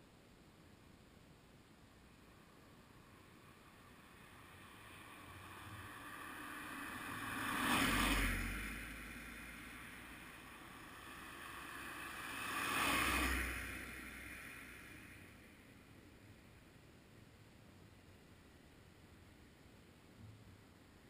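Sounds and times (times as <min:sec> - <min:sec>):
vehicles passing by: 0:01.9 - 0:16.8.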